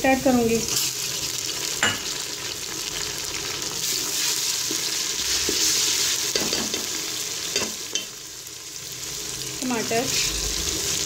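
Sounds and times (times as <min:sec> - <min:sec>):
onions sizzling in hot oil: 0:00.0 - 0:11.0.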